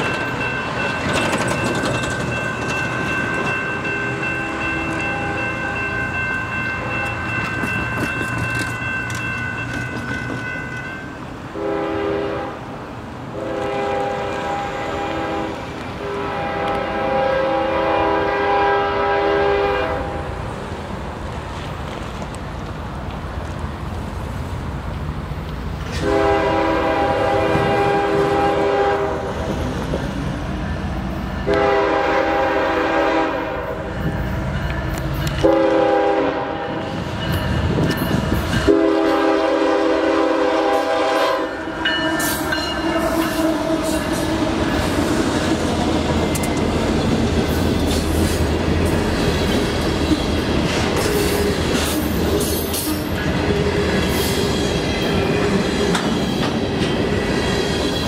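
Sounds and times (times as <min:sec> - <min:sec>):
train air horn blasts: 0:11.5 - 0:12.7, 0:13.3 - 0:20.4, 0:25.9 - 0:29.3, 0:31.4 - 0:34.2, 0:35.4 - 0:37.0, 0:38.6 - 0:45.2.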